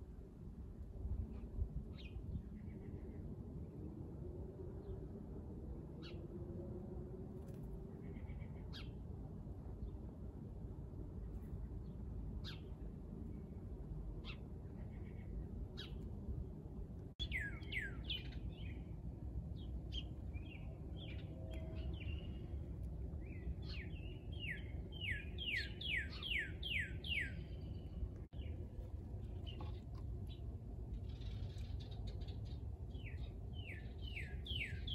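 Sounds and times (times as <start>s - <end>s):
low steady background hum: 0.0s - 34.9s
songbirds chirping and whistling: 17.2s - 28.6s, 29.2s - 34.9s.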